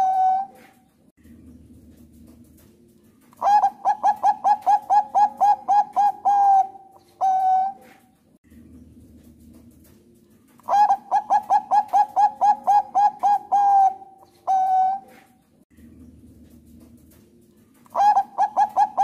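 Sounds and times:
dove cooing: 0.0 - 0.8, 3.4 - 8.1, 10.6 - 15.4, 17.9 - 19.0.

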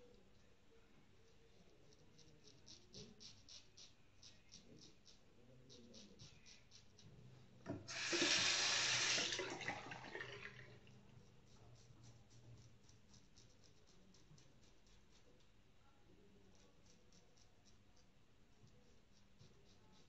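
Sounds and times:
bathroom tap running: 7.7 - 11.0.

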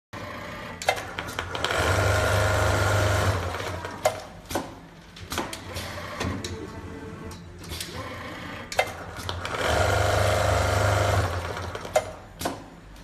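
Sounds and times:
sewing machine stitching burst: 9.4 - 11.9.

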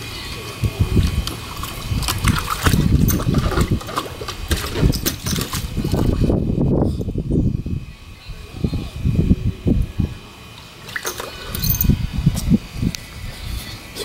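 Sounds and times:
dog splashing in water: 1.2 - 6.1.

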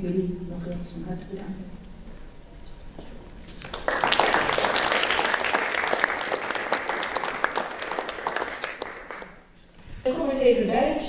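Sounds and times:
audience applauding: 3.6 - 9.5.

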